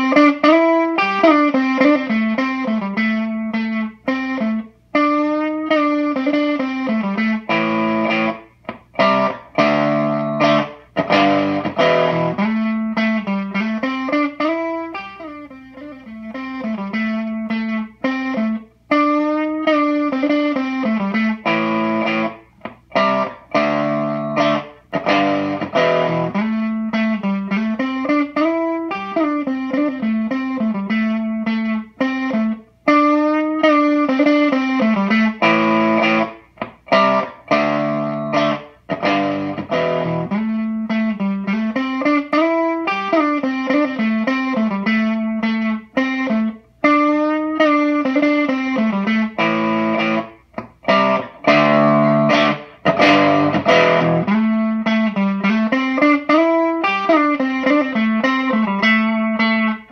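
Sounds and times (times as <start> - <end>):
fuzzed electric guitar riff: 0.0 - 59.9.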